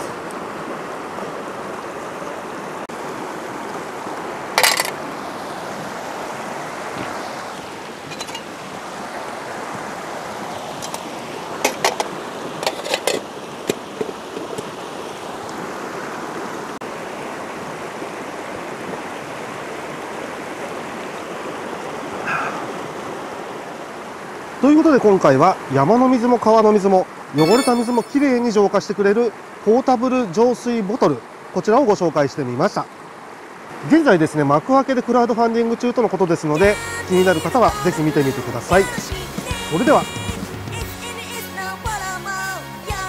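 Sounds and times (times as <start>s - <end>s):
stream rushing over rocks: 0.0s - 40.0s
metal mess tin clinking: 4.6s - 5.0s, 8.1s - 8.5s.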